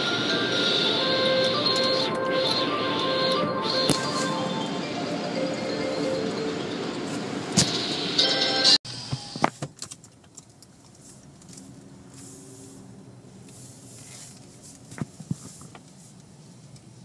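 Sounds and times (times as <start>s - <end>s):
car cabin noise at low speed: 0.0s - 17.0s.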